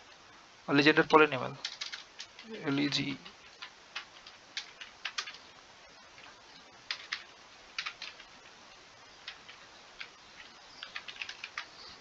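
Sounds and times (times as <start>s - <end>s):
keyboard keys clicking: 1.6s - 2.4s, 3.6s - 5.4s, 6.9s - 8.3s, 9.2s - 11.7s.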